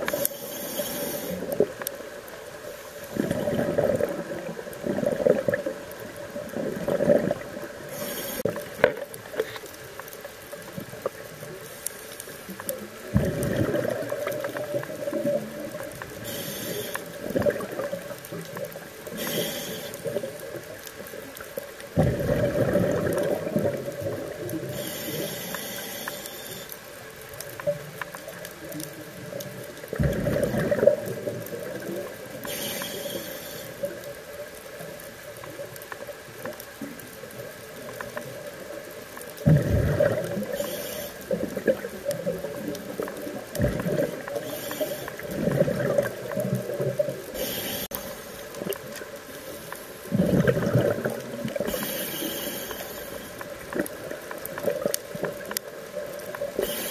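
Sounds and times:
regulator hissing: 0.1 - 1.6, 16.2 - 17.2, 19.1 - 20.1, 40.5 - 41.3
bubbling rush of exhaled air: 3.1 - 5.8, 6.5 - 8.6, 13.1 - 15.7, 22.0 - 24.9, 30.0 - 31.8, 39.4 - 42.5, 43.6 - 48.0, 50.1 - 52.9.

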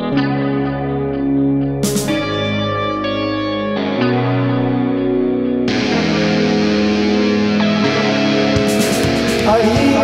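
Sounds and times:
electric guitar: 0.0 - 10.0
drum and cymbal hits: 1.8 - 2.3, 7.8 - 10.0.

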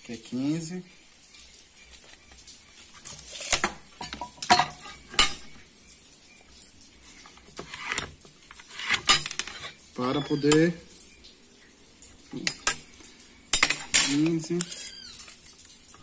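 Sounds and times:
metal ruler scraping on wood: 7.6 - 9.8.

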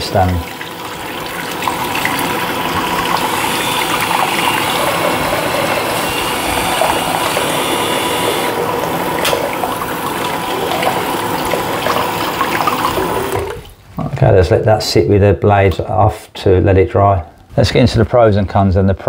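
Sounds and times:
water tap running: 0.0 - 13.8.

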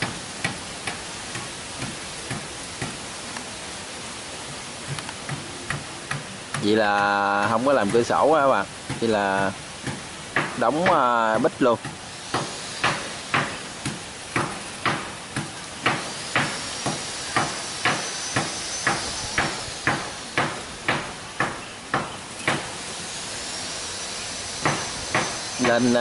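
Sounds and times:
hammer driving nails into wood: 11.8 - 22.7, 24.6 - 25.8.

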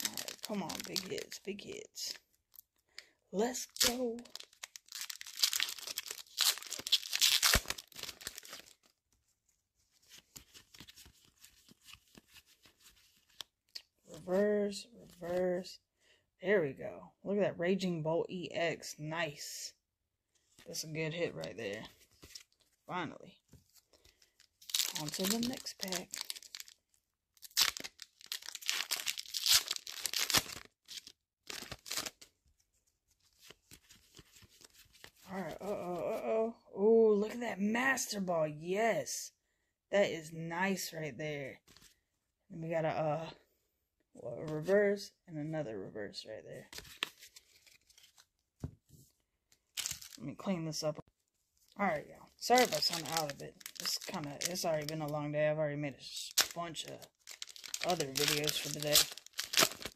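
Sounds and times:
foil wrapper tearing and crinkling: 0.0 - 1.4, 3.4 - 9.0, 24.0 - 26.8, 27.4 - 32.3, 46.8 - 48.2, 49.7 - 50.2, 52.4 - 55.0, 56.2 - 59.9
cards being handled: 9.9 - 13.9, 23.5 - 26.8, 27.5 - 32.3, 33.2 - 35.3, 41.6 - 42.0, 46.7 - 49.1, 49.7 - 50.2, 57.3 - 59.9.

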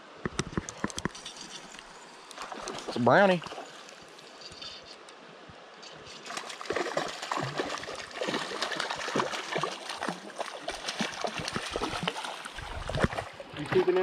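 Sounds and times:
fish splashing in water: 6.3 - 13.9.

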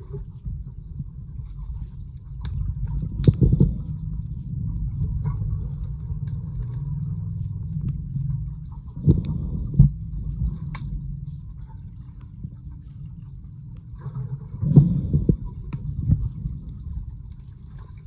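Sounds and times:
underwater rumble of water: 0.0 - 18.0
sharp underwater knocks: 2.4 - 3.9.

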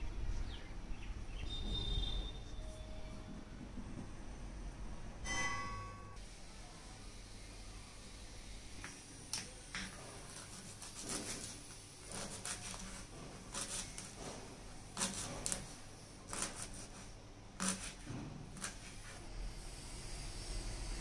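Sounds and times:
knife chopping on cutting board: 10.3 - 14.4, 15.0 - 15.7.

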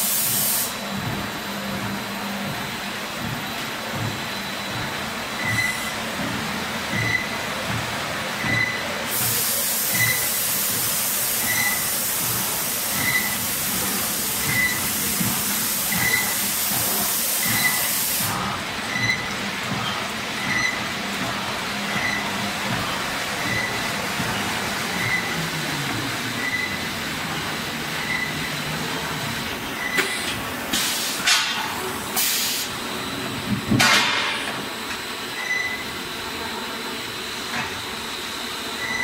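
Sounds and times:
veneer lathe machinery running: 10.0 - 33.8
loud hiss: 32.2 - 32.8.

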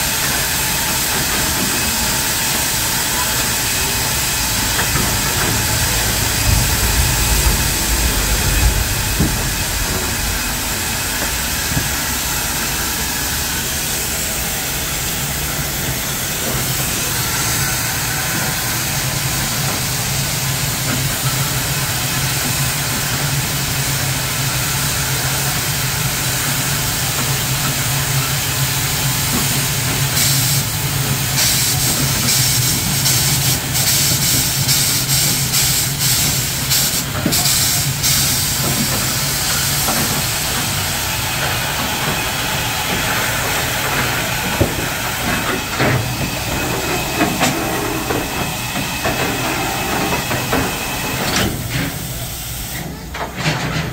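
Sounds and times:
steam locomotive hissing: 0.0 - 53.9
low hum: 3.8 - 14.4.

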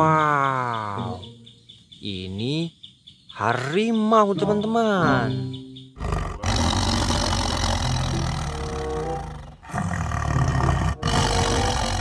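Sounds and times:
tiger growling: 5.9 - 12.0.

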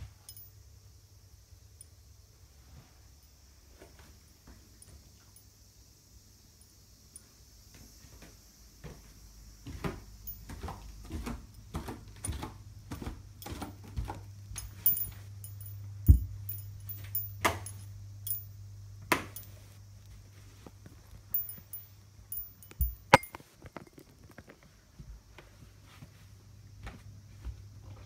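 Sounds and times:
light clicks and jingling: 0.2 - 0.6, 10.2 - 10.8, 13.4 - 18.6, 19.3 - 19.7, 21.2 - 24.1
footsteps on wooden stairs: 16.1 - 16.4.

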